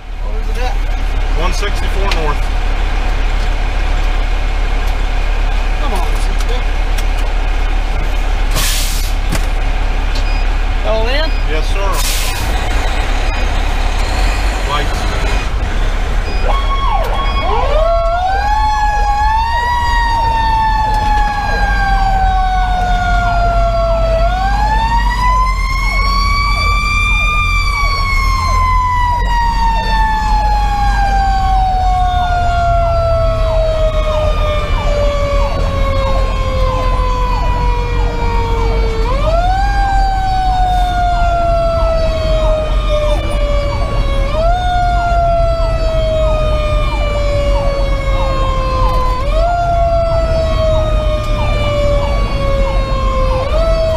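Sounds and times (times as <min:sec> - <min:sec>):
diesel engine rumble: 0:00.0 - 0:53.9
mechanical siren wailing: 0:12.4 - 0:53.9
electronic siren fast sweeps: 0:16.2 - 0:53.9.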